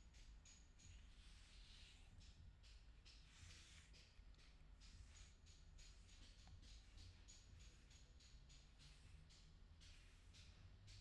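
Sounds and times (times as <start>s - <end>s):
brush swishing through dog fur: 0.8s - 2.2s, 3.0s - 6.8s.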